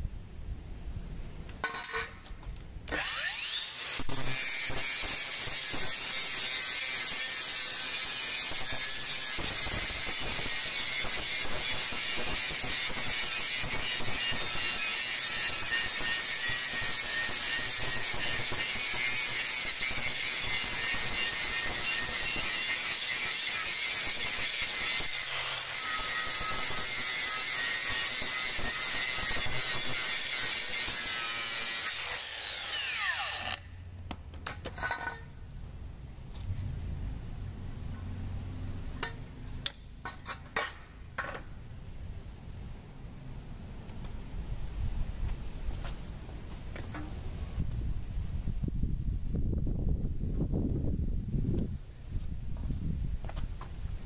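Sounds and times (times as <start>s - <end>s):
grinder disc spinning down: 2.9s - 5.4s, 29.2s - 33.7s
angle grinder grinding metal: 2.9s - 33.8s.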